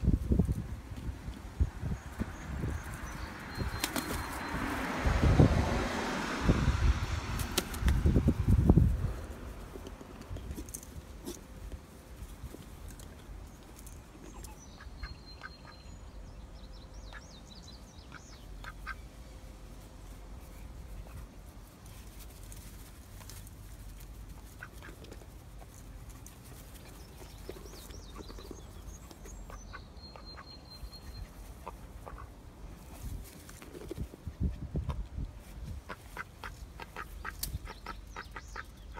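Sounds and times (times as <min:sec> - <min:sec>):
steady low rumble: 0:05.0 - 0:14.2.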